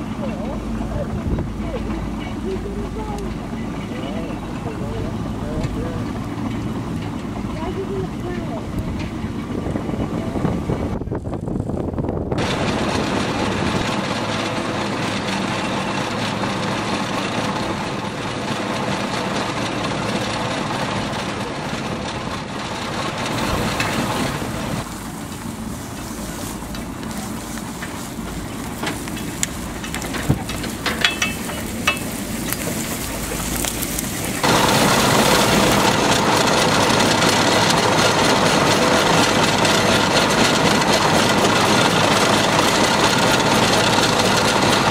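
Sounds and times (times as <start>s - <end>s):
wire rope hauling plough: 0.0s - 11.7s, 12.4s - 44.9s
winding drum running: 12.4s - 44.9s
sharp clicks and knocks: 26.5s - 38.2s.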